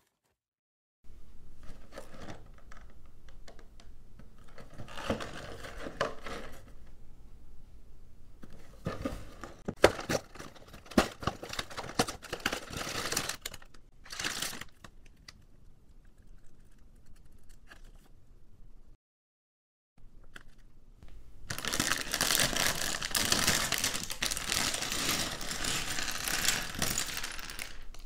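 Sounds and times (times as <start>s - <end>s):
cardboard box tearing and crinkling: 21.5s - 26.2s.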